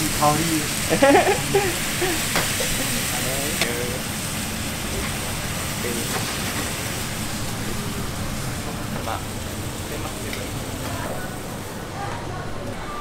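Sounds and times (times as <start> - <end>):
steady hissing noise: 0.0 - 12.0
faint voices: 7.5 - 13.0.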